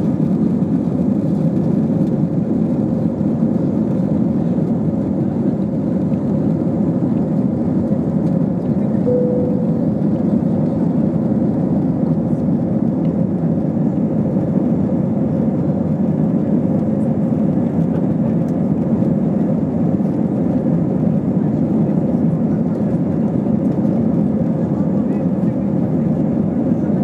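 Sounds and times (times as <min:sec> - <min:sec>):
jet engine cabin roar: 0:00.0 - 0:27.0
faint steady whine: 0:09.0 - 0:10.9.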